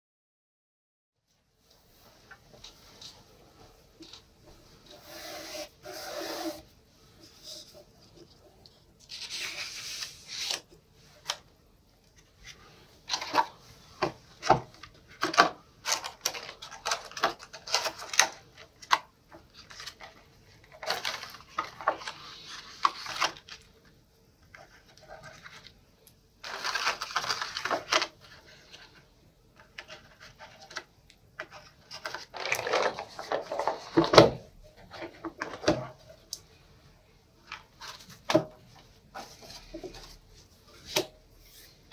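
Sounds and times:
paper sliding and rubbing: 0:04.8 - 0:07.9, 0:09.0 - 0:10.6
plastic case opening: 0:31.4 - 0:36.0.

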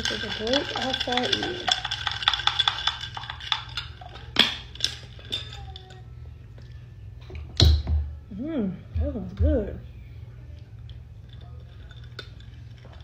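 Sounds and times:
glass and ice clinking: 0:00.0 - 0:06.0, 0:11.2 - 0:13.0.

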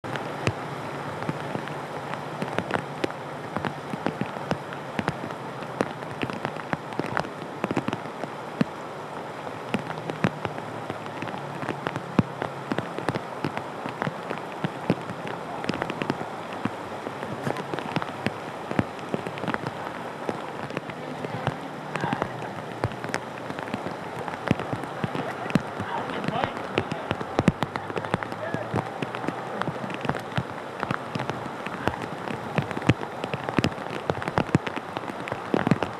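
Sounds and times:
floodwater rushing: 0:00.0 - 0:35.9
water splashing and pattering: 0:00.0 - 0:35.9.

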